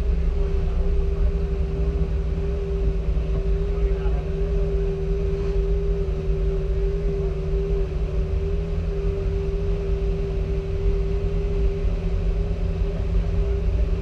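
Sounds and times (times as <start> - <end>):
car engine idling: 0.0 - 14.0
steady hum: 0.0 - 14.0.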